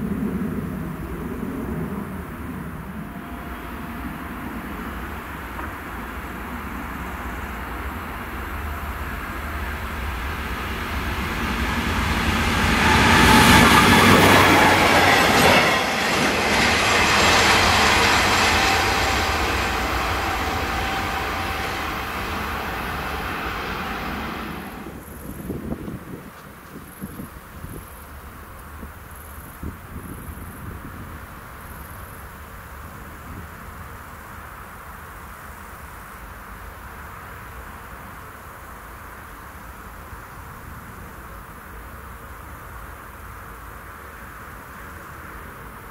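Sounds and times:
freight train rolling past: 0.0s - 26.3s
wind buffeting microphone: 0.0s - 32.0s.

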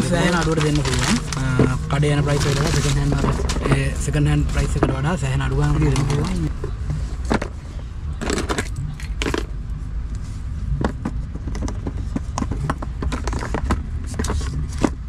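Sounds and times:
boxes and phones clicking: 0.0s - 3.9s, 10.8s - 15.0s
low rumble inside car: 0.0s - 15.0s.

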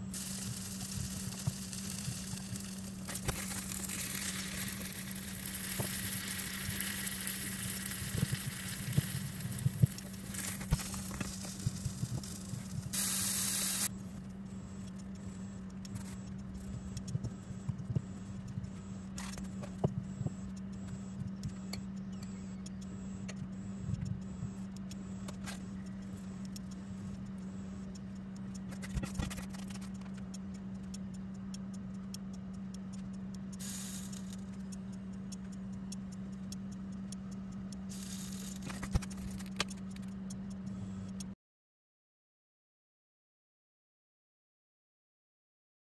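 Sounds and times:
hiss bursts: 0.0s - 13.9s, 33.6s - 34.4s, 37.9s - 38.8s
low hum: 0.0s - 41.4s
flatbread crackling in pan: 0.1s - 13.9s.

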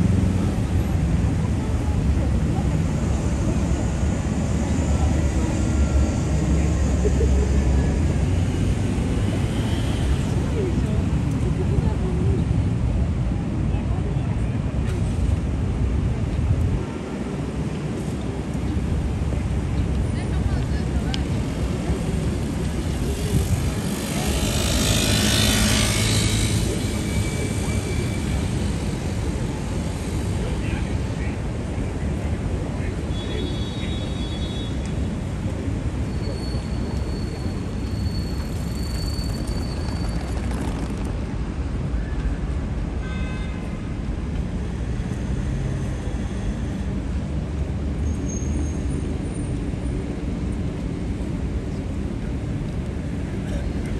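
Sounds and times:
city traffic engine hum: 0.0s - 53.9s
vehicle passing with hiss: 21.4s - 30.5s.

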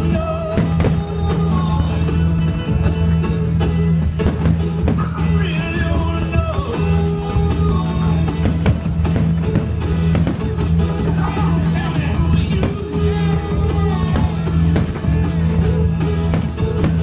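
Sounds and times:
rock song with singing: 0.0s - 17.0s
fireworks bursting bangs: 0.4s - 1.9s, 4.0s - 6.1s, 7.4s - 17.0s.

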